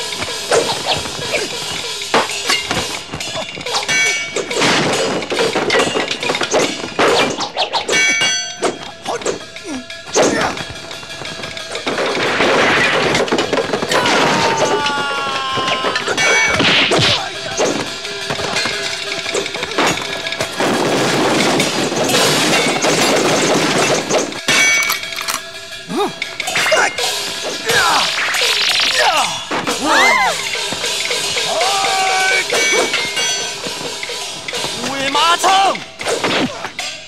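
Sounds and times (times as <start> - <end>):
film music: 0.0 - 37.0
ringing metal blade clangs: 0.5 - 10.6, 24.4 - 25.6, 31.1 - 33.8
wood smashing: 11.8 - 18.5
whacks and hits: 36.0 - 36.9.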